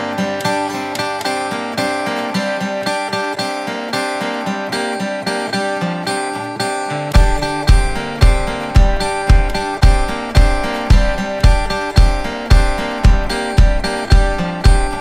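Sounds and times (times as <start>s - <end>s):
plucked notes run: 7.1s - 15.0s
deep heavy bass beats: 7.2s - 15.0s.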